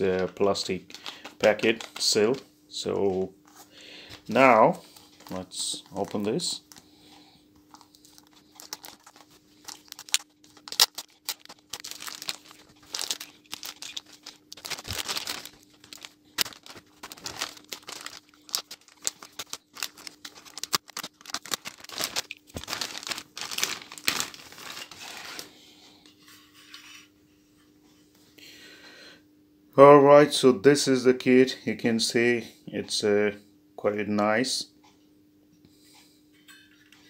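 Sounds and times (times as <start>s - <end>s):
faint steady hum: 0.0s - 37.0s
plastic wrapping crinkling: 0.2s - 2.4s, 4.3s - 6.8s, 7.7s - 25.6s.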